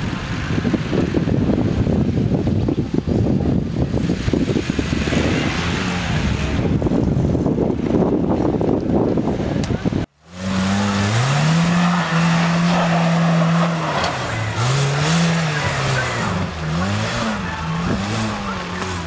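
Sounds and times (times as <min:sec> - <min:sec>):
suv engine revving: 0:03.9 - 0:07.0, 0:10.1 - 0:19.0.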